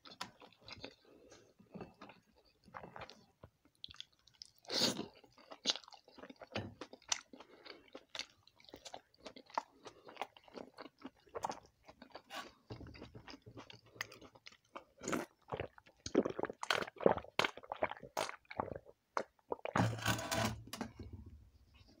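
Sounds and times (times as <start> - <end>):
wet chewing and mouth clicks: 0.0 - 19.8
slurping from a bowl: 19.6 - 20.6.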